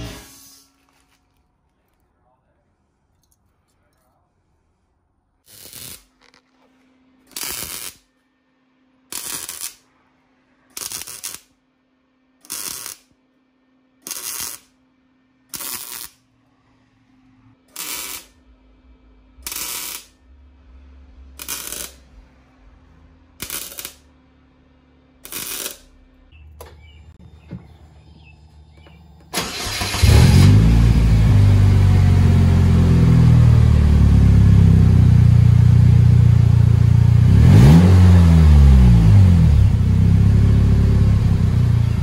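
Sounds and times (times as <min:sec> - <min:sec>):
welding arc crackling hiss: 0:05.4 - 0:06.2, 0:07.3 - 0:08.1, 0:09.1 - 0:09.8, 0:10.7 - 0:11.5, 0:12.4 - 0:13.1, 0:14.0 - 0:14.7, 0:15.5 - 0:16.2, 0:17.7 - 0:18.4, 0:19.4 - 0:20.2, 0:21.4 - 0:22.1, 0:23.4 - 0:24.0, 0:25.2 - 0:25.9
welding machine hum: 0:05.4 - 0:08.2, 0:09.0 - 0:10.0, 0:10.6 - 0:11.6, 0:12.4 - 0:13.2, 0:14.0 - 0:16.4, 0:17.6 - 0:27.0.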